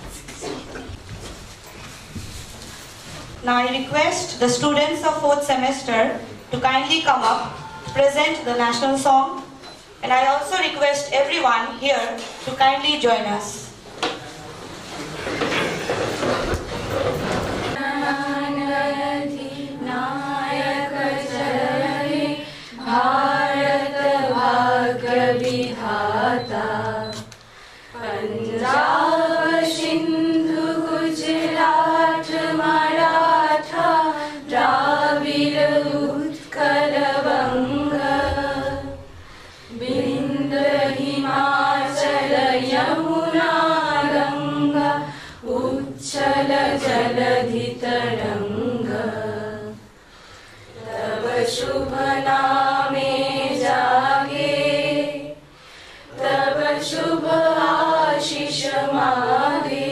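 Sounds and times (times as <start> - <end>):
women singing in unison: 17.8 - 27.3, 27.9 - 50.0, 50.6 - 59.9.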